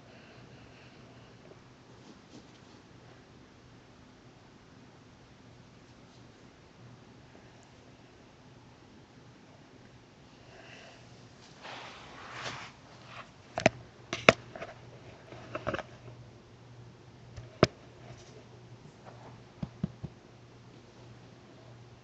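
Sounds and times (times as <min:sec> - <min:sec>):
rustling: 0:11.2 - 0:13.7.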